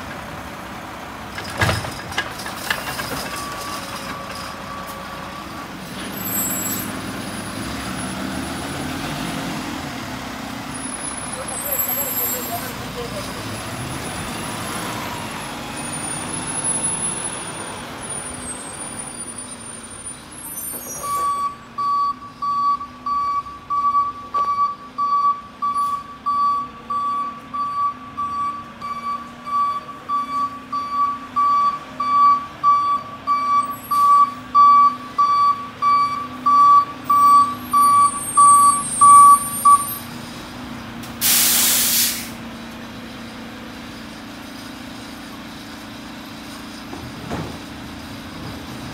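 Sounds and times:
truck reverse alarm beeping: 2.8s - 5.6s, 15.1s - 40.1s
air brake hiss: 41.2s - 42.4s.

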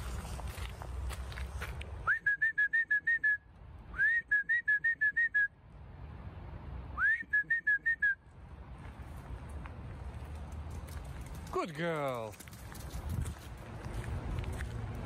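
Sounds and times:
person whistling for a dog: 2.0s - 5.5s, 7.0s - 8.2s.

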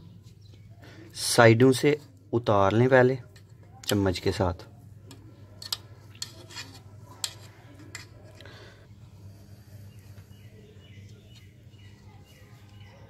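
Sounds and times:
metal spoon scraping pot: 5.4s - 8.6s.

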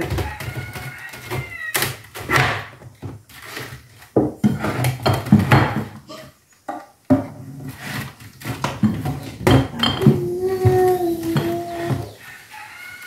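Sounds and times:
containers knocking on wooden shelf: 0.0s - 1.6s, 4.1s - 6.0s, 8.5s - 12.2s
faint high cry: 9.8s - 12.2s.

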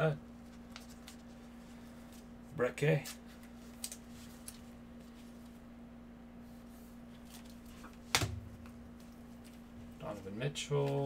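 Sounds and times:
steady low hum: 0.0s - 11.0s
handling cards and plastic sleeves: 0.4s - 2.3s, 2.9s - 5.6s, 7.1s - 11.0s.

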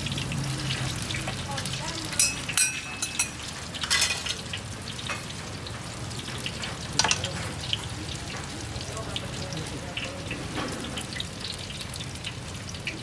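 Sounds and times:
hot oil sizzling in wok: 0.0s - 13.0s
metal ladle clinking: 2.1s - 4.4s.

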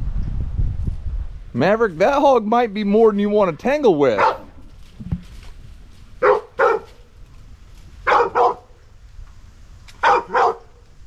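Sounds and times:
dog barking: 4.2s - 4.5s, 6.2s - 7.0s, 8.0s - 8.8s, 10.0s - 10.8s.

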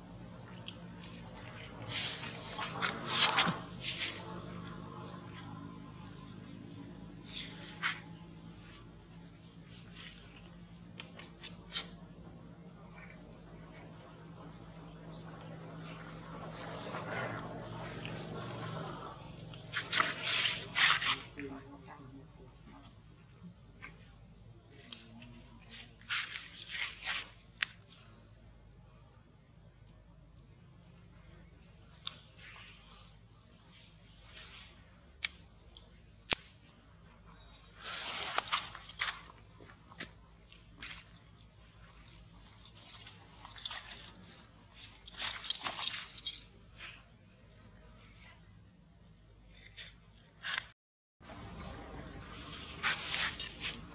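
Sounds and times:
insects droning: 0.0s - 53.9s
rustling: 37.7s - 47.1s, 51.6s - 53.9s.

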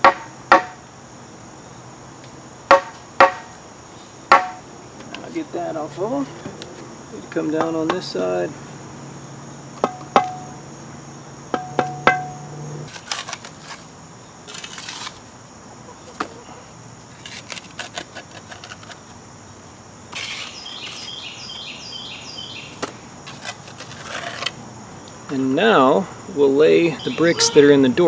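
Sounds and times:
high drone of insects: 0.0s - 28.0s
high chirping notes: 11.5s - 12.9s, 26.7s - 28.0s.

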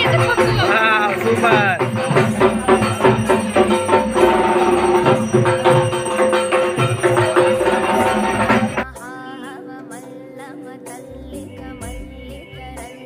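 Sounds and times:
fast percussion beat: 0.0s - 8.9s
held instrument notes: 0.0s - 8.9s.

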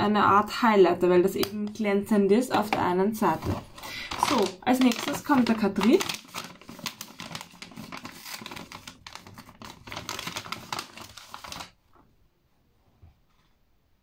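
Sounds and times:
paper bag crackling and rustling: 3.3s - 11.8s.

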